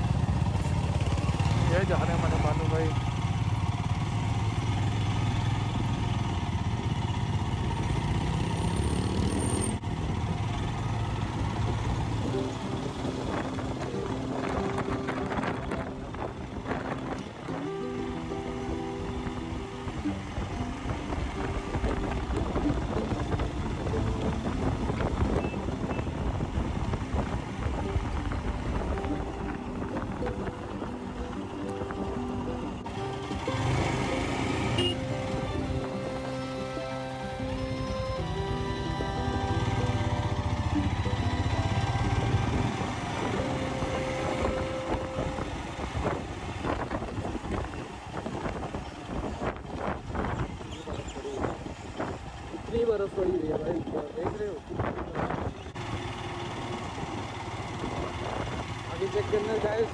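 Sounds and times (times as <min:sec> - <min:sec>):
motorcycle engine running: 0:00.0 - 0:59.9
background music: 0:10.8 - 0:46.6
wind rushing over microphone: 0:11.6 - 0:17.6, 0:18.4 - 0:33.4, 0:39.9 - 0:55.9, 0:57.7 - 0:59.0.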